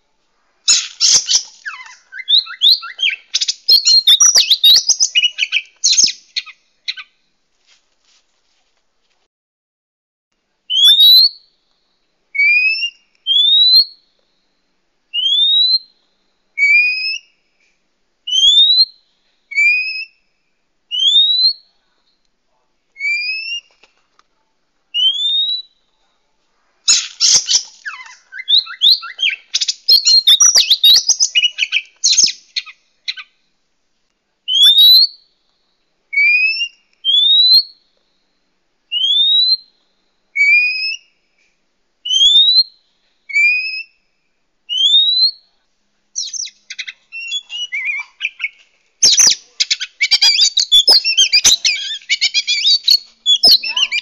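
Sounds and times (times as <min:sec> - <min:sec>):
bird harsh chattering: 0:00.7 - 0:07.0, 0:26.9 - 0:33.2, 0:46.2 - 0:54.0.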